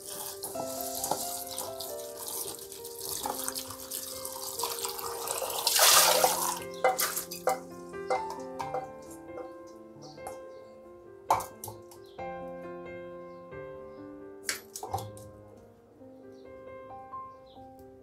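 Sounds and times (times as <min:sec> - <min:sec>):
background music: 0:00.0 - 0:18.0
tap running into steel bowl: 0:05.7 - 0:09.5, 0:11.3 - 0:12.0.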